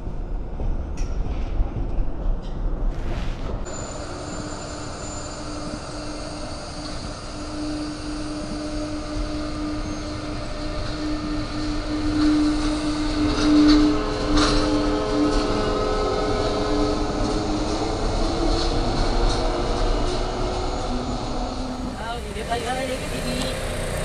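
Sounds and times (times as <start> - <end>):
electric train hum: 0.0 - 24.0
train running gear clicks: 0.6 - 2.8.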